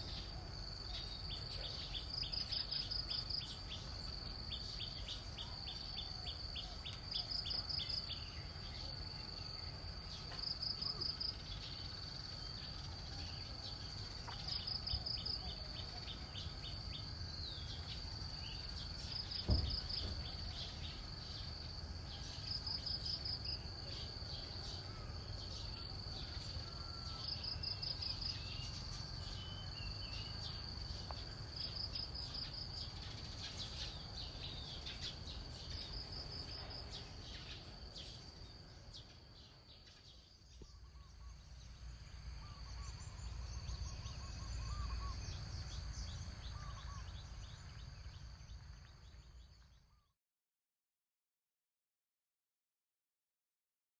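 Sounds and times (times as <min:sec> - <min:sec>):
insects shrilling drone: 0:00.0 - 0:49.6
faint bird chirps: 0:00.0 - 0:50.2
low thump: 0:19.3 - 0:20.5.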